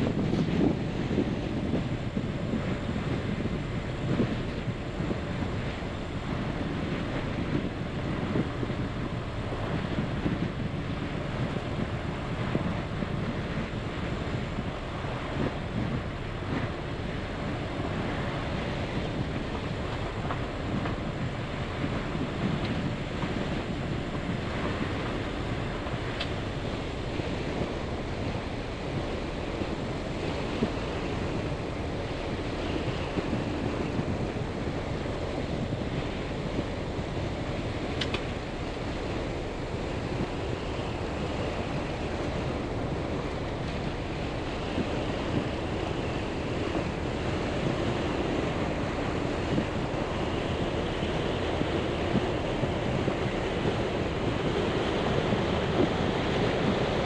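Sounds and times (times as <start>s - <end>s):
strong wind: 0.0s - 57.0s.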